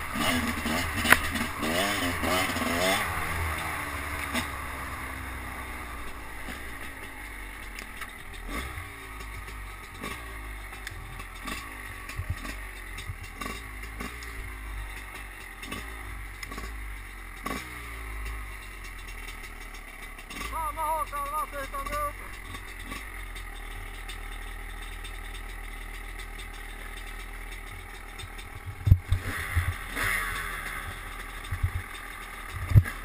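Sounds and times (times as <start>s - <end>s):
dirt bike engine throttle blips: 20.3s - 22.6s.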